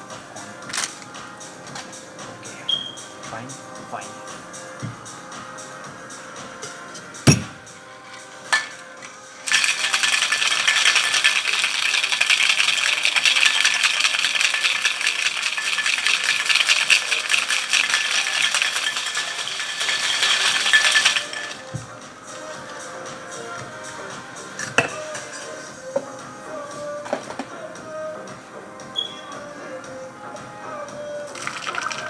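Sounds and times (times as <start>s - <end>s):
cocktail shaker closing knocks: 7.3s - 7.6s
ice rattling in shaker: 9.4s - 21.7s, 31.3s - 32.0s.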